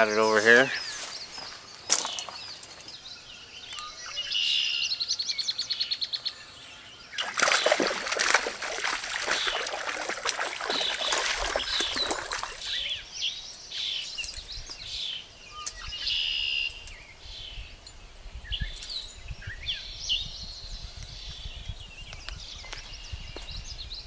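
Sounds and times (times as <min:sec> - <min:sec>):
songbirds calling: 0:00.0 - 0:24.0
water splashing and churning: 0:07.2 - 0:12.9.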